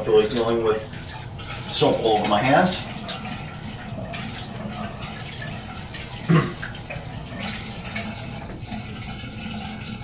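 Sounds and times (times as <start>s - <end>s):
tap water running into sink: 0.0s - 10.0s.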